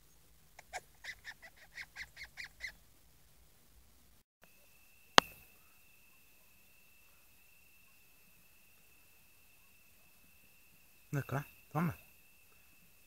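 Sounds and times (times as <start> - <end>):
faint high whine: 4.4 - 13.0.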